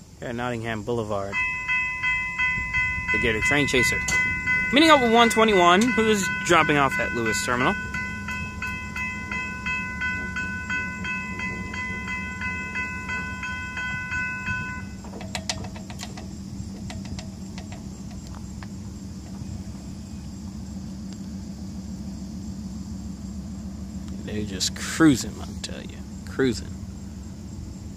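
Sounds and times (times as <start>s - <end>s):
diesel train rumble: 0.0s - 27.9s
crossing bell ringing: 1.2s - 18.1s.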